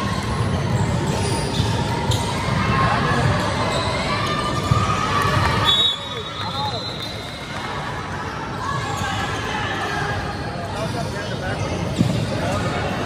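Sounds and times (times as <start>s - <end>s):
crowd voices: 0.0s - 13.0s
faint shoe squeaks: 0.6s - 2.3s
ball bouncing on hard court: 11.9s - 12.3s.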